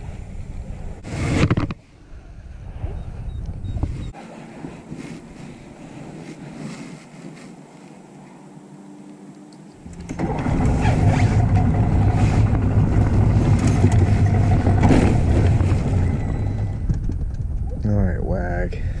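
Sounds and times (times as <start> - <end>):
outboard motor running: 9.8 - 16.9.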